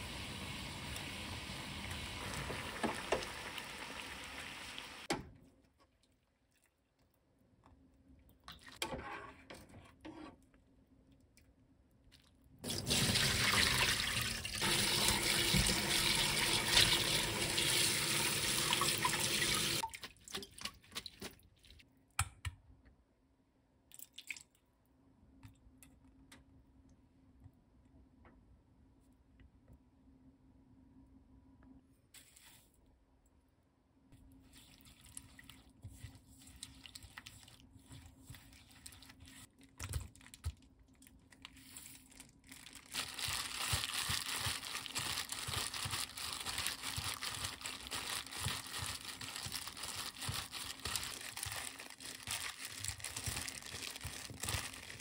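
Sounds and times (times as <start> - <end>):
pot of water boiling: 0.0 - 5.1.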